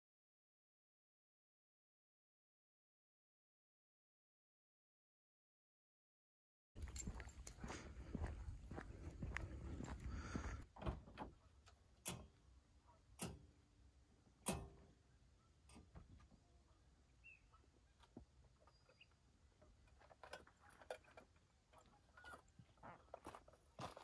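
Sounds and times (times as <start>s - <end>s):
footsteps on gravel: 6.8s - 10.6s, 22.2s - 24.0s.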